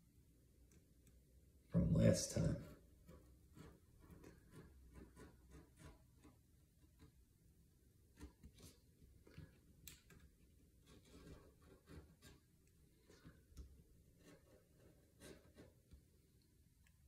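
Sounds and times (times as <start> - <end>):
tool scratching on tape: 2.6 - 7.2, 10.8 - 13.3, 14.1 - 16.0.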